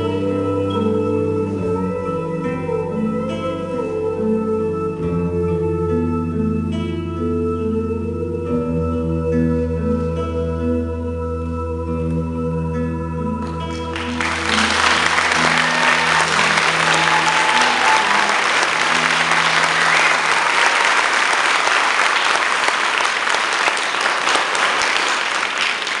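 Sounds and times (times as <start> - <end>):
music with held notes: 0.0 - 21.4
audience applauding: 13.4 - 26.0.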